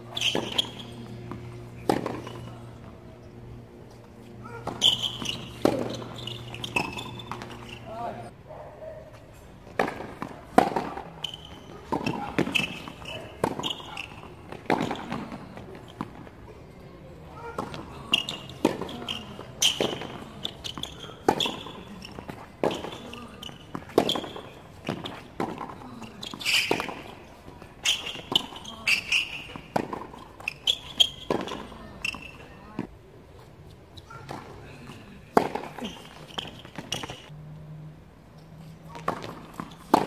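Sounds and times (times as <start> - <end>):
racket hitting tennis ball: 0.0 - 2.9, 3.9 - 7.9, 9.6 - 16.3, 17.4 - 32.9, 35.3 - 37.2, 38.9 - 40.0
tennis ball bouncing: 0.0 - 7.9, 9.6 - 16.3, 17.4 - 32.9, 35.3 - 37.2, 38.9 - 40.0
shoes squeaking on court: 0.0 - 8.3, 9.1 - 16.6, 17.3 - 37.4, 38.4 - 40.0.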